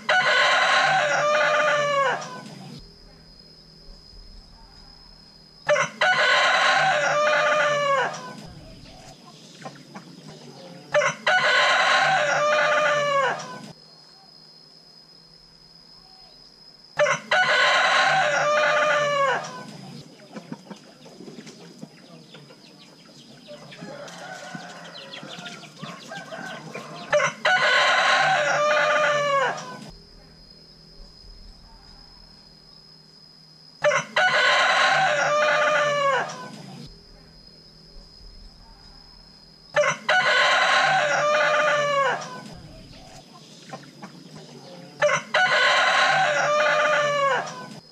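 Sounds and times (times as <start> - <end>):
rooster crowing: 0.0 - 2.7, 5.6 - 8.8, 10.6 - 13.8, 17.0 - 19.8, 23.4 - 29.9, 33.8 - 36.8, 39.1 - 43.0, 44.6 - 47.9.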